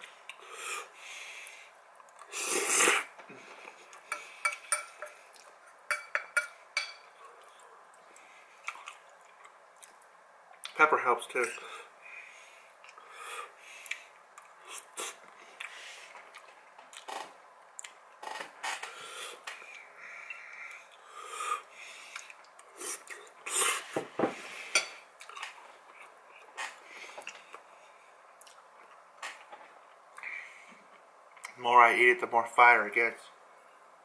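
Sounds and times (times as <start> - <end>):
heavy breathing through nose: 0.4 - 4.5, 11.6 - 16.2, 18.8 - 25.0, 30.2 - 30.9
fork clinking on ceramic bowl: 5.9 - 7.1
chewing pasta: 7.2 - 10.8.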